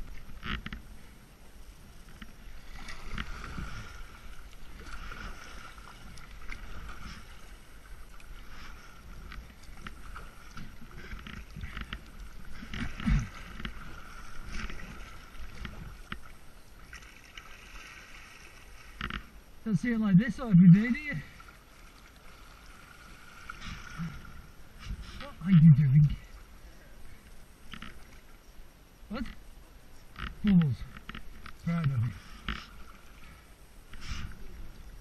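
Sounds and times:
paddle strokes splashing water: 2.0 - 19.4, 21.2 - 25.5.

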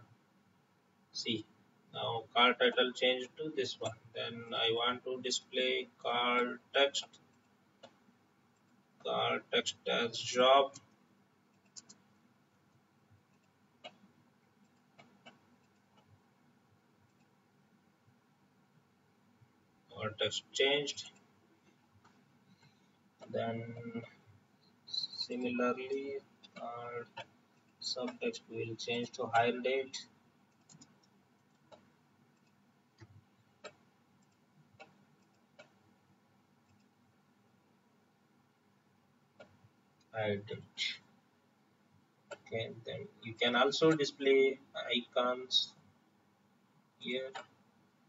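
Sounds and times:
computer mouse clicks: 10.7 - 12.1, 12.7 - 16.2, 17.0 - 17.4, 25.9 - 28.4, 30.5 - 35.8, 36.6 - 37.0, 39.4 - 40.1, 42.3 - 42.5, 47.3 - 47.6
faint computer mouse clicks: 30.5 - 35.8, 36.6 - 36.9.

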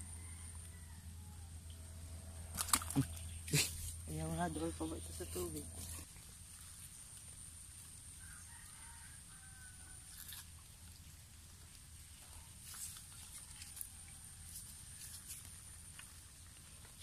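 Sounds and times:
steady high-pitched hum: 0.0 - 17.0
rustling clicks in dry leaves: 14.5 - 17.0.

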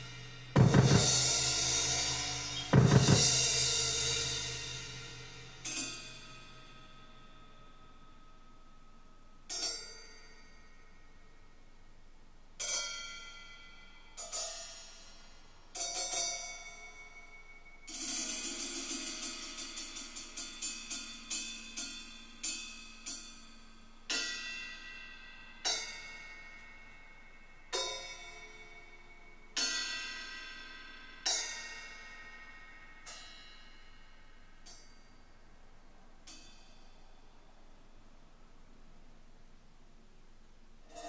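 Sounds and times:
percussion music through speakers: 0.0 - 5.8.

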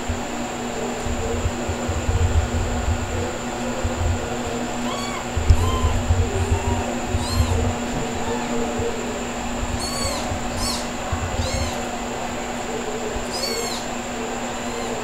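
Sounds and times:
steady background hum: 0.0 - 15.0
kitten mewing: 4.8 - 8.9, 9.8 - 11.9, 13.2 - 13.9, 14.5 - 15.0.

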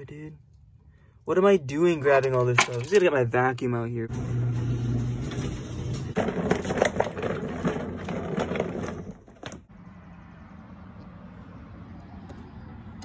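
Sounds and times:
plastic vacuum hose clattering: 6.2 - 9.6.

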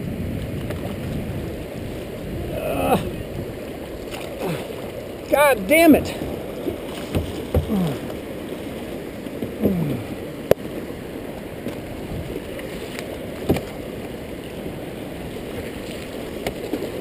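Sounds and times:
river current rushing and splashing: 0.0 - 17.0
sharp knocks on kayak hull: 6.2 - 7.8, 13.4 - 13.8.

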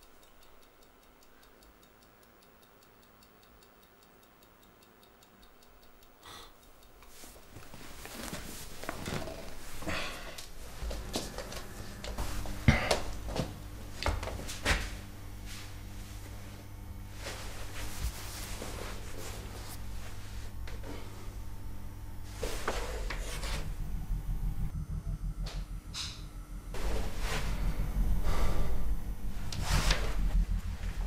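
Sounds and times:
clock ticking: 0.0 - 9.8
rustling: 7.1 - 9.8
low hum: 8.6 - 31.0.

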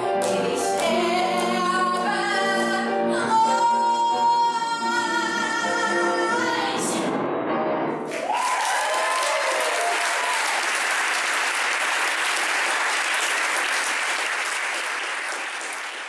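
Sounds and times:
audience applauding: 8.1 - 16.0
person cheering: 8.2 - 10.7.

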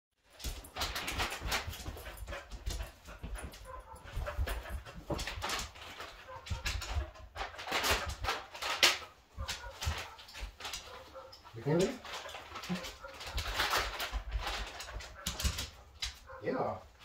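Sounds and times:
dog claws clicking on tile: 0.2 - 16.4
plastic bag crinkling: 0.3 - 1.8, 5.2 - 16.0.

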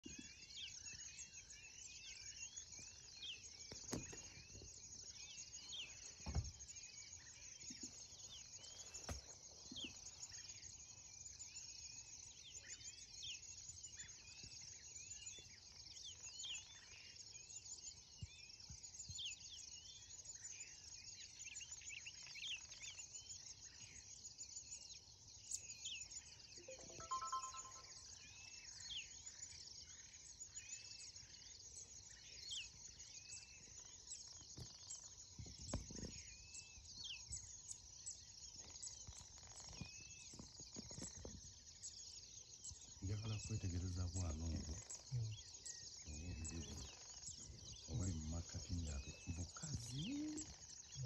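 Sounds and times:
bird chirps: 0.0 - 51.0
insects hissing: 48.0 - 50.9.

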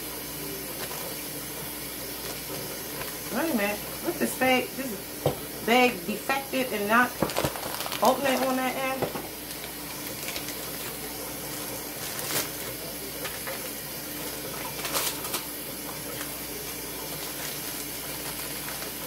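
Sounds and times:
plastic bag crinkling: 7.0 - 19.0.

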